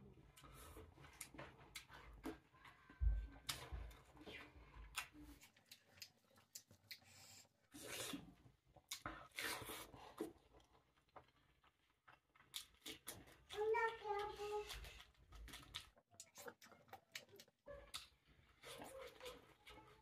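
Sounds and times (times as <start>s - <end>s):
person chewing and smacking: 0.2s - 20.0s.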